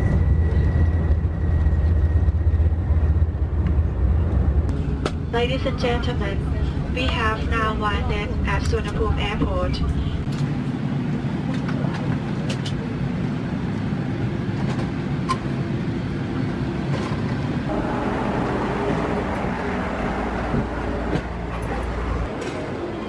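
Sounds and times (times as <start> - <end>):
airplane cabin rumble and hiss: 0.0 - 23.0.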